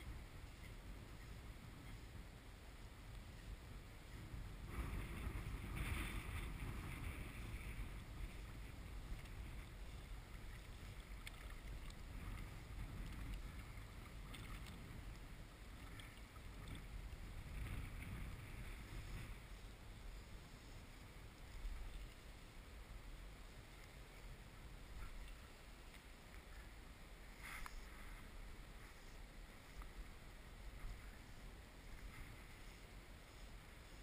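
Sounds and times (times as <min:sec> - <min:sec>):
water lapping and sloshing: 0:00.0 - 0:34.0
wind rumble on microphone: 0:00.0 - 0:34.0
faint clicks: 0:10.3 - 0:16.9.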